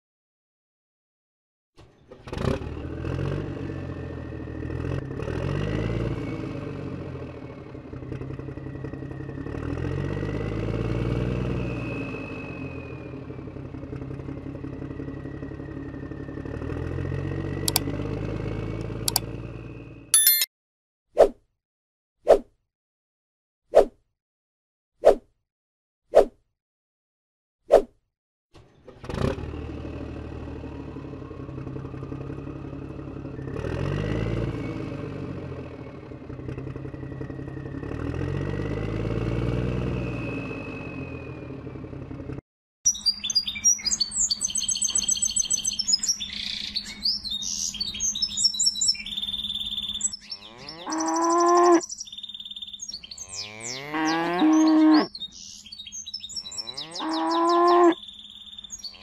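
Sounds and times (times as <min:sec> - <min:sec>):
birds chirping: 0:42.9 - 0:59.0
cows mooing: 0:50.2 - 0:51.8, 0:53.2 - 0:55.1, 0:56.4 - 0:58.0.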